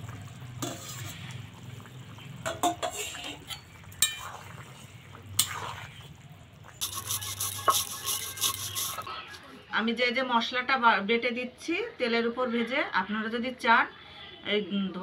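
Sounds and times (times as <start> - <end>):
ladle clinking against a pan: 2.4 - 4.4
rasping scrape: 6.8 - 9.4.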